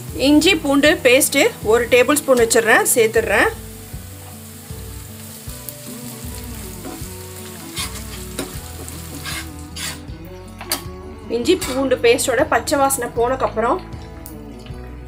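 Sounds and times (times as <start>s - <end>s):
onions sizzling in hot oil: 0.0s - 10.1s.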